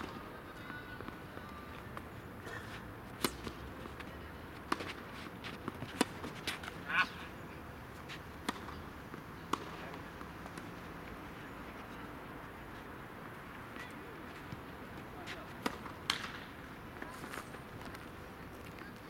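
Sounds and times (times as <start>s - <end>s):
tennis ball hit by rackets: 2.7s - 6.8s, 8.4s - 10.8s, 15.6s - 16.5s
tennis ball bouncing: 3.1s - 6.9s, 8.4s - 10.8s, 15.6s - 16.6s.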